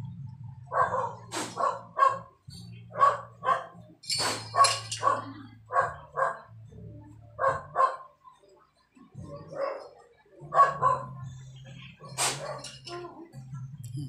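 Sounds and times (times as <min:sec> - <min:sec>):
dog barking: 0:00.7 - 0:06.5, 0:07.4 - 0:08.2, 0:09.2 - 0:11.3, 0:12.0 - 0:12.8.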